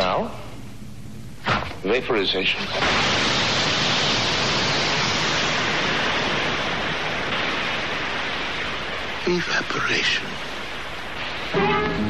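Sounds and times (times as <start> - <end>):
hiss of vapour jetting: 2.5 - 12.0.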